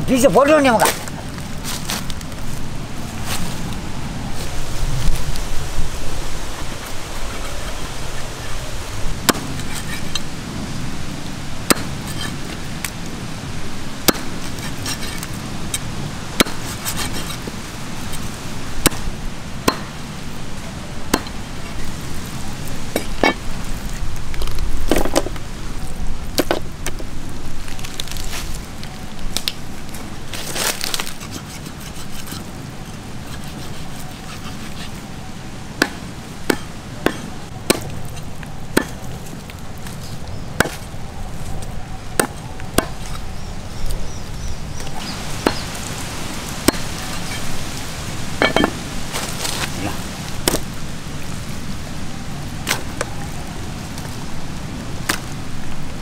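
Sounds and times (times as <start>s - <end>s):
steady background hiss: 0.0s - 56.0s
cleaver chopping on wooden block: 11.7s - 11.9s, 35.8s - 37.9s, 42.2s - 43.1s, 45.4s - 45.6s.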